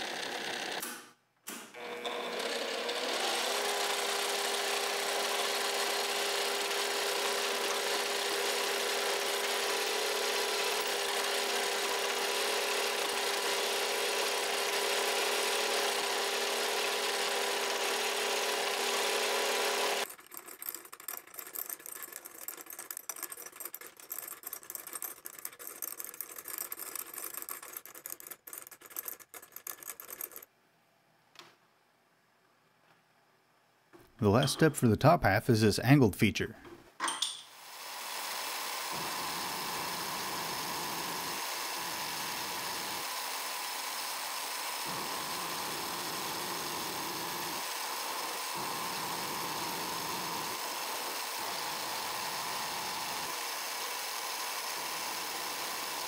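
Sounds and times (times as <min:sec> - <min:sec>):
drill boring into metal: 0:00.0 - 0:00.8, 0:01.8 - 0:20.1, 0:37.7 - 0:56.0
milling machine spindle whine: 0:01.8 - 0:20.0, 0:37.8 - 0:56.0.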